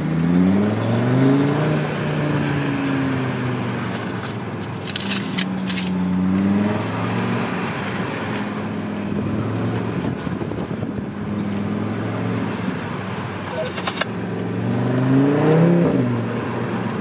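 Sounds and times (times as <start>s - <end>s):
car engine heard from cabin: 0.2s - 17.0s
sharp clicks: 13.5s - 14.1s.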